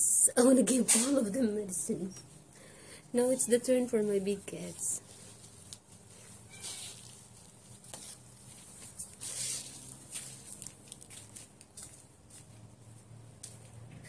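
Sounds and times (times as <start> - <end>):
tissue paper rustling: 4.1 - 12.6
short high squeak: 6.5 - 7.0.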